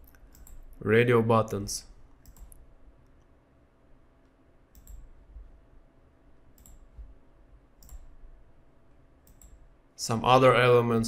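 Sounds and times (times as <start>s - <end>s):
faint computer mouse clicks: 0.1s - 0.7s, 2.2s - 3.3s, 4.2s - 5.1s, 6.5s - 7.1s, 7.8s - 8.1s, 9.2s - 9.6s.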